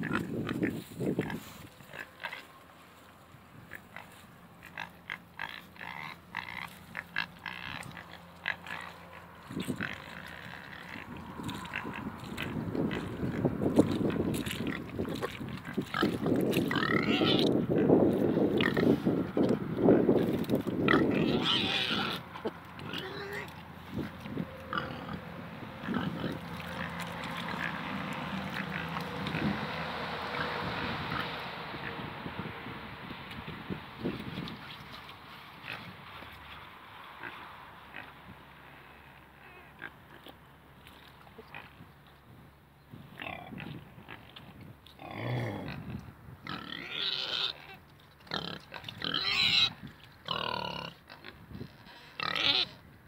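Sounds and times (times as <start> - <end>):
wind noise on microphone: 0.0 - 1.9, 9.4 - 10.2, 10.8 - 22.2, 23.8 - 26.5, 28.6 - 36.1, 41.7 - 46.8, 48.9 - 50.1, 51.2 - 53.0
pigs grunting: 3.7 - 32.0, 43.2 - 44.3, 45.0 - 52.8.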